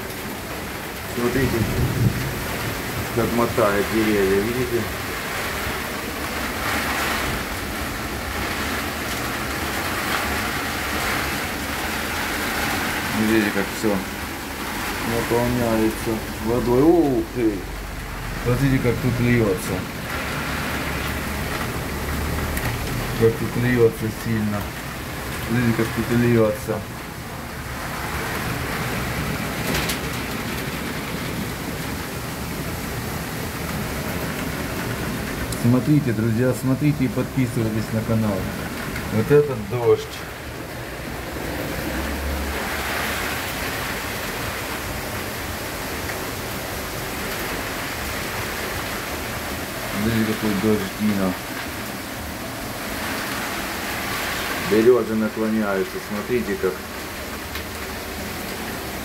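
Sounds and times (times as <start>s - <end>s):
heavy rain pouring: 0.0s - 59.0s
running water: 3.1s - 59.0s.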